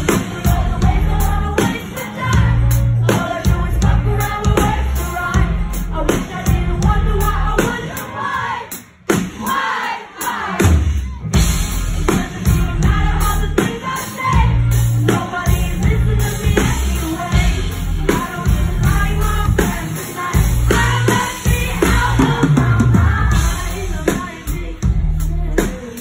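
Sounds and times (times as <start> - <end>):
heavy pulsing bass: 0.0 - 1.6, 2.4 - 7.7, 11.4 - 13.6, 14.4 - 19.8, 20.4 - 25.7
live pop band playing: 0.0 - 26.0
drum hits: 9.0 - 25.2
person singing: 10.2 - 26.0.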